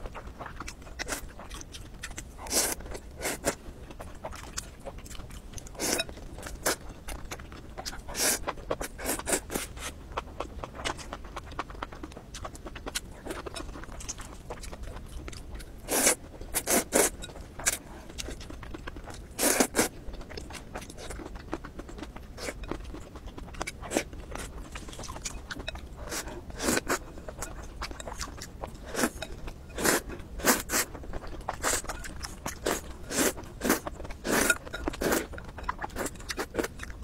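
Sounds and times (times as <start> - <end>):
chewing and mouth noises: 0.0 - 37.0
noodles slurped: 32.6 - 35.3.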